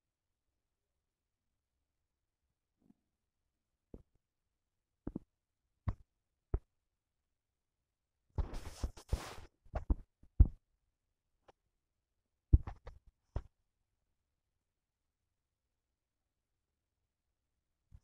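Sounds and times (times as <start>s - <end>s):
rustling noise: 8.4s - 9.9s.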